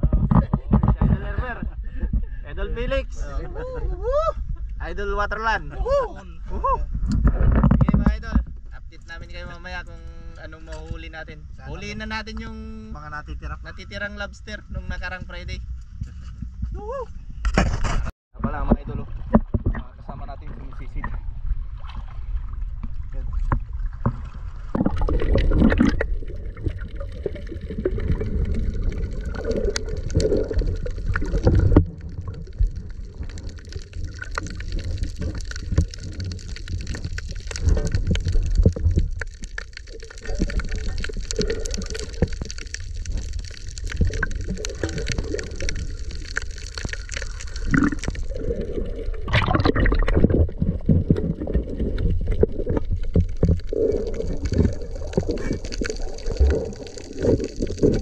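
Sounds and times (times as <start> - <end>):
low underwater rumble: 6.3 - 58.0
muffled underwater sloshing: 18.5 - 58.0.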